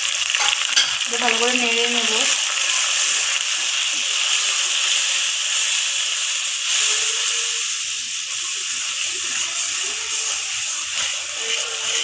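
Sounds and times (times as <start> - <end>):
masala sizzling in oil: 0.0 - 12.0
spatula stirring: 4.3 - 12.0.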